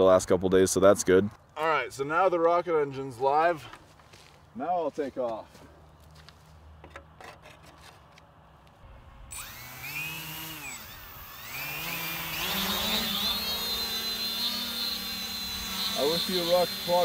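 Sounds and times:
drone motors whining: 8.8 - 17.0.

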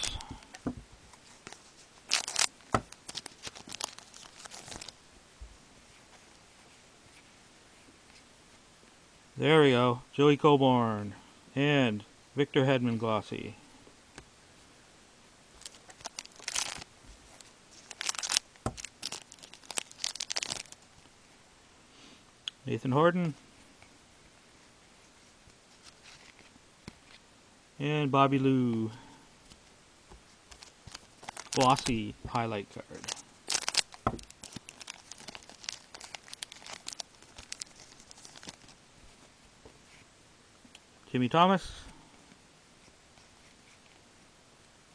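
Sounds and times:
plastic wrapper tearing and crinkling: 0.0 - 0.6, 1.2 - 5.0, 15.6 - 20.8, 30.5 - 38.8.

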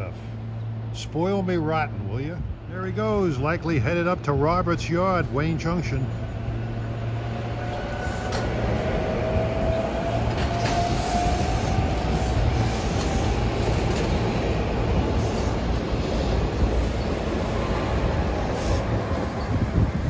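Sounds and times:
train wheels rumbling on rail: 0.0 - 20.0
train motor whine: 6.6 - 19.8.

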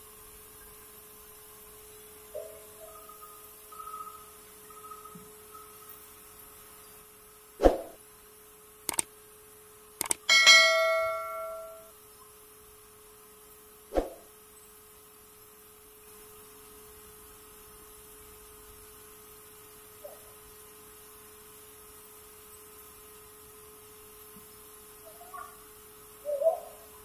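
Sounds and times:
faint steady hum: 0.0 - 27.0
mouse-like clicks: 8.9 - 9.1, 10.0 - 10.3
notification bell ding: 10.3 - 11.9.

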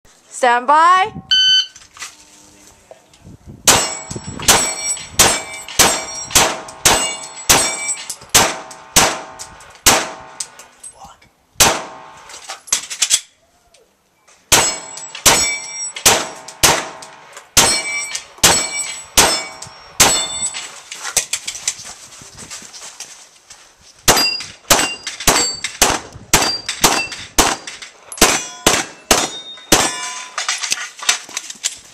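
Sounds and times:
steel plate clanging: 3.7 - 8.2, 14.5 - 21.3, 24.1 - 25.8, 26.4 - 31.3
pistol shots: 3.7 - 10.4, 11.6 - 12.2, 14.5 - 20.4, 24.1 - 30.1.

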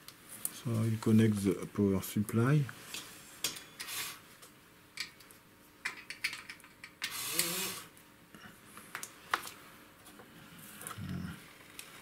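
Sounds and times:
small servo motor whirring: 7.1 - 7.9.

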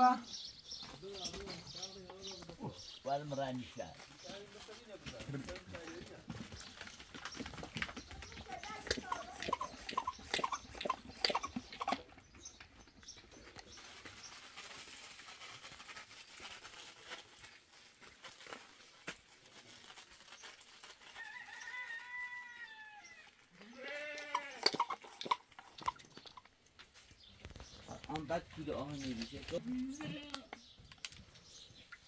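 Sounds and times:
farm animals calling: 8.2 - 12.6, 22.5 - 26.5.

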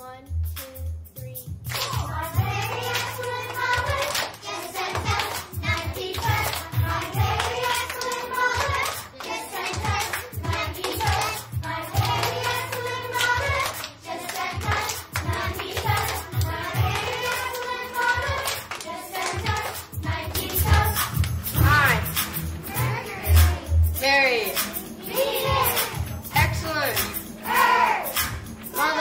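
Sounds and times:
instrumental music with steady beat: 0.0 - 29.0
children singing: 1.7 - 23.9, 24.6 - 26.3, 27.0 - 29.0.

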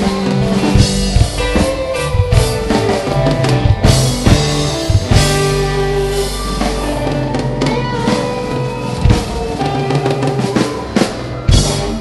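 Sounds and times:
drum kit: 0.0 - 12.0
electric guitars playing chords: 0.0 - 12.0.

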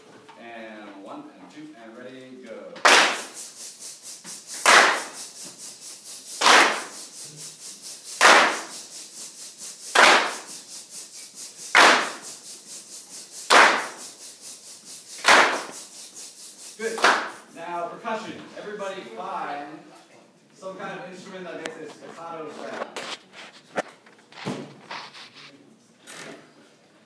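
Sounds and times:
loud hand claps: 2.8 - 3.6, 4.3 - 5.4, 6.3 - 7.2, 8.1 - 8.9, 9.9 - 10.6, 11.6 - 12.4, 13.4 - 14.2, 15.1 - 16.1, 16.9 - 17.5.

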